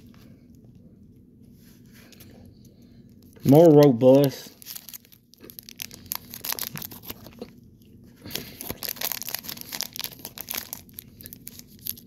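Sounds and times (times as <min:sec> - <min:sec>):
plastic wrapper crackling and tearing: 0:03.8 - 0:07.5, 0:08.2 - 0:12.0.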